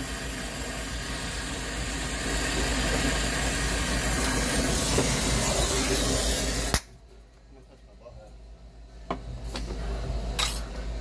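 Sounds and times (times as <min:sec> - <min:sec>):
torch flame hissing: 0:00.0 - 0:06.9.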